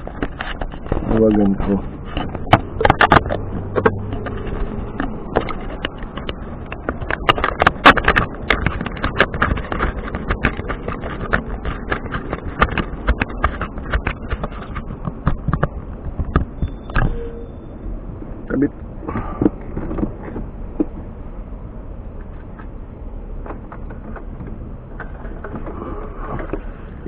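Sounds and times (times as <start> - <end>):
hand handling camera taps and clicks: 2.2 - 16.6.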